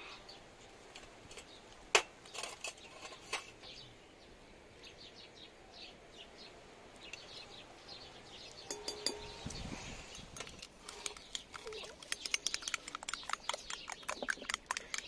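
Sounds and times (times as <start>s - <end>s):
faint small birds chirping: 0.0s - 15.0s
dishes clinking: 8.6s - 9.4s.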